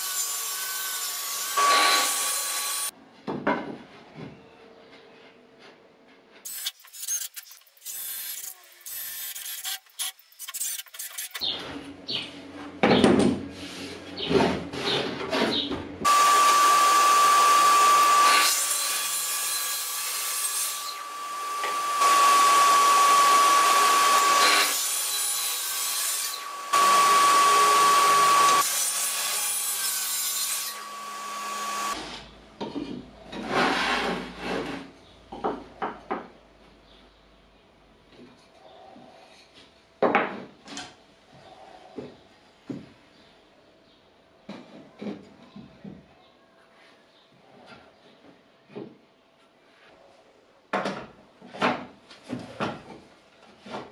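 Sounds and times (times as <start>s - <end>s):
track saw cutting wood: 0.0s - 2.9s, 16.0s - 32.0s.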